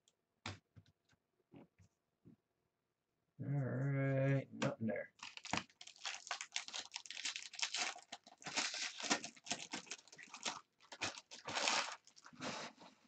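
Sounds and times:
foil wrapper crinkling and tearing: 0:05.2 - 0:12.7.

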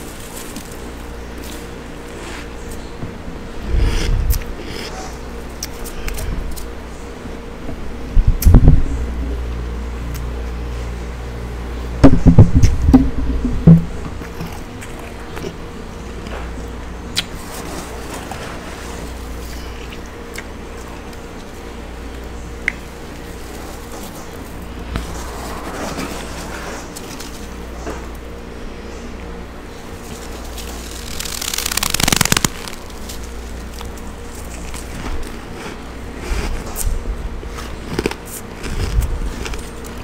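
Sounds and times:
steady low hum: 0:00.0 - 0:40.0
frost being chewed and crunched: 0:30.0 - 0:40.0.

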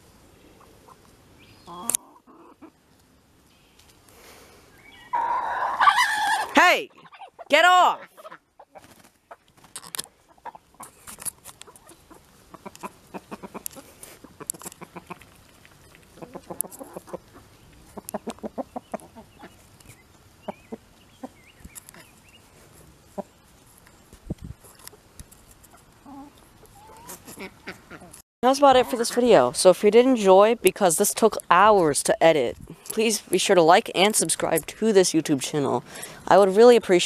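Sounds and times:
hens clucking: 0:00.5 - 0:02.9, 0:05.1 - 0:23.5, 0:24.7 - 0:30.1.

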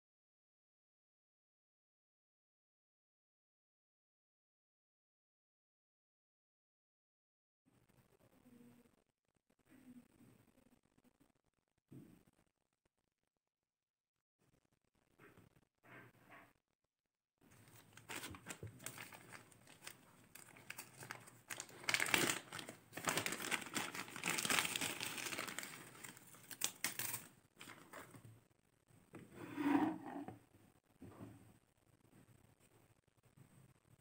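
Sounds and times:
plastic bag crinkling: 0:17.5 - 0:28.2.

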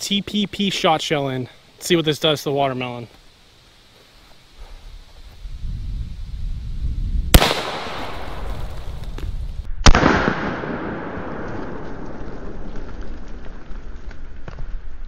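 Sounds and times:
air shotgun reports: 0:00.0 - 0:03.1.

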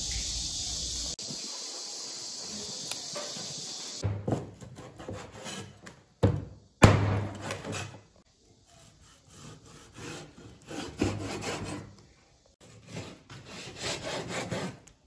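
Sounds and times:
blade scraping on wood: 0:04.6 - 0:05.9, 0:08.7 - 0:11.8.

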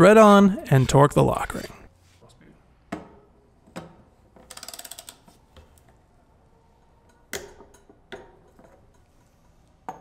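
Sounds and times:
ratchet clicks: 0:04.5 - 0:05.3.

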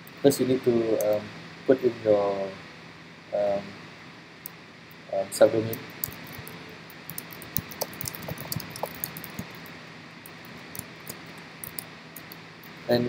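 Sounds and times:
steady hiss: 0:00.0 - 0:13.0
keyboard typing clicks: 0:06.0 - 0:09.7.

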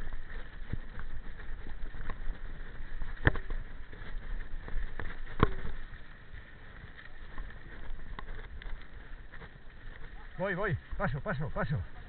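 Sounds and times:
bike knocking on bumps: 0:00.0 - 0:06.0
bike tyres rumbling and rattling: 0:00.0 - 0:11.0.

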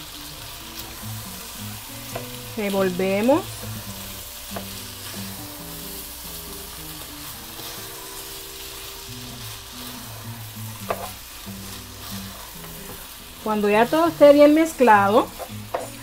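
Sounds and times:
rice sizzling in oil: 0:00.0 - 0:16.0
spatula scraping pot: 0:09.2 - 0:16.0.

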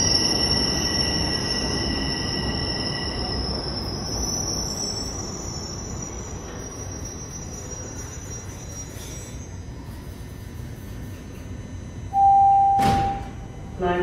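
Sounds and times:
high wheel squeal: 0:00.0 - 0:10.1
subway train rumble: 0:00.0 - 0:14.0.

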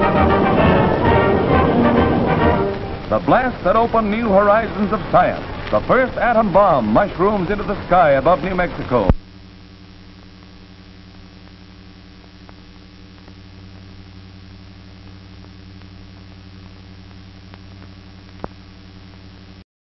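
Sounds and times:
film soundtrack hum and hiss: 0:00.0 - 0:19.6
faint clicks and pop: 0:04.5 - 0:09.4, 0:10.5 - 0:14.3, 0:14.9 - 0:19.6.

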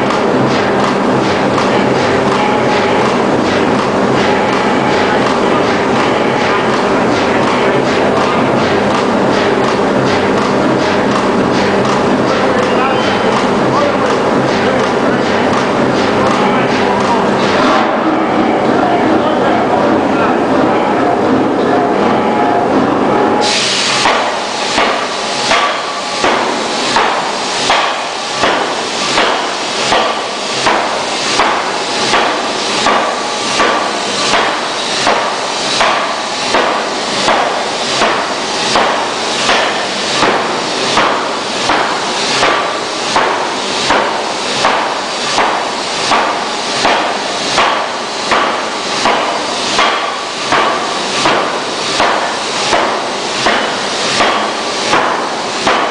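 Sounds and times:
forging hammer blows on metal: 0:24.0 - 0:55.9.

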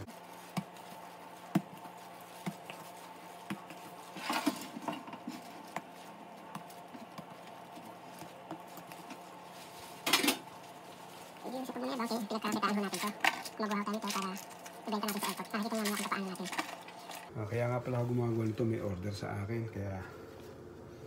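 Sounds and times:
hands patting dough: 0:00.0 - 0:04.2, 0:05.1 - 0:09.8
steady low hum: 0:00.0 - 0:21.0.

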